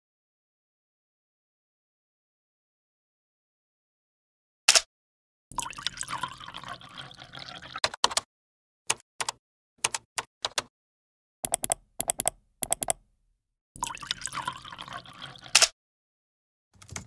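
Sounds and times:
water pouring into a glass: 5.5 - 7.8, 13.8 - 15.6.

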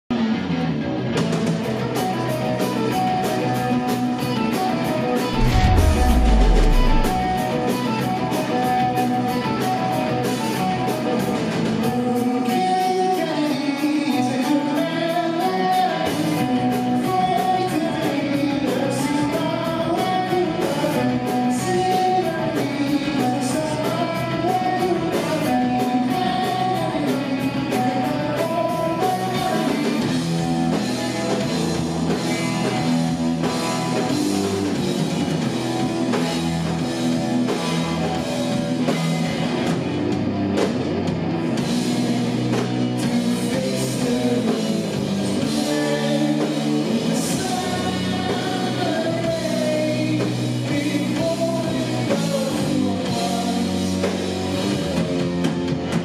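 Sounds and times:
electric guitars: 0.1 - 56.0
drum kit beating: 5.3 - 7.9
deep sliding note: 5.4 - 7.6.

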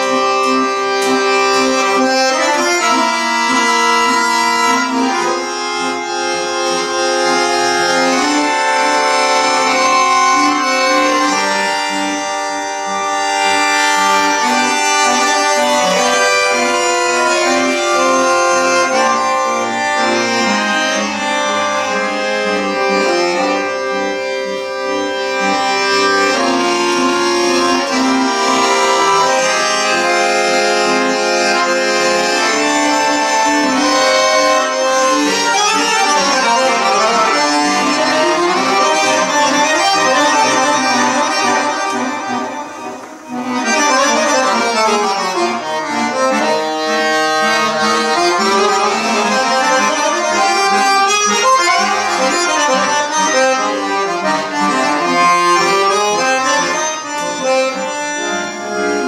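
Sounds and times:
accordion music: 0.0 - 59.0.

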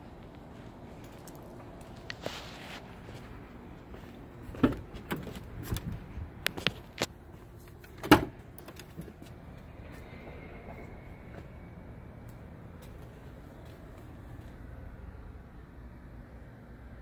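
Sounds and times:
car door latch clunk: 8.0 - 8.4.

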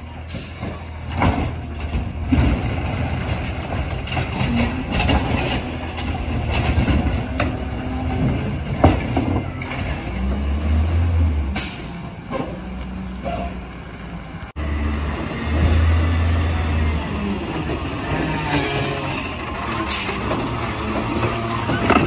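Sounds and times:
truck body knocks and rattles: 0.6 - 10.0.

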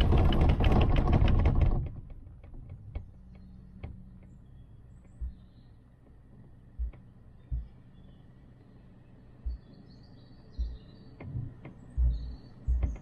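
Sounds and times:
rollers rattling through cable sheaves: 0.0 - 2.9.

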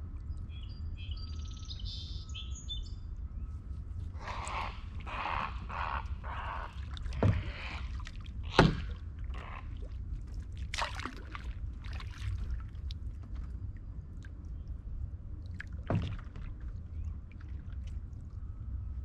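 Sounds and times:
paddle splashing in water: 4.2 - 13.6, 15.5 - 18.2
sharp knocks: 8.5 - 9.0.

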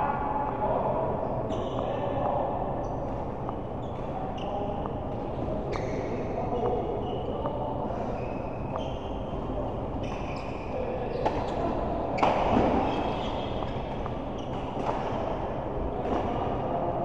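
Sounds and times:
shoe squeaks: 1.3 - 2.0, 2.8 - 5.0, 5.6 - 14.8
racket hitting shuttle: 12.2 - 15.4.

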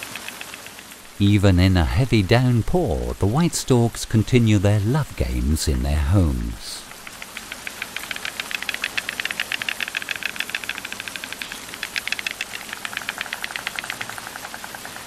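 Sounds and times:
storks clattering bills: 0.0 - 1.1, 6.9 - 15.0.

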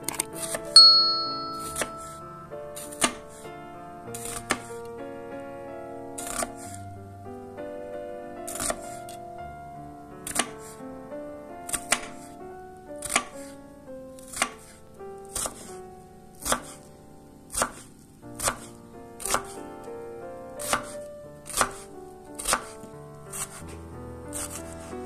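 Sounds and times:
soft background music: 0.0 - 25.0
knife chopping on wooden board: 22.4 - 22.7.

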